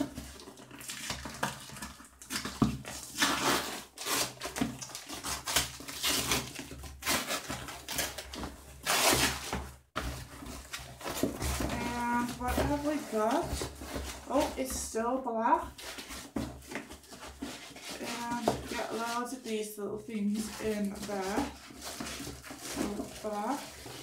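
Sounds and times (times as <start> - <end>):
cardboard box being torn open: 0.0 - 9.6
tape ripping: 2.2 - 9.6.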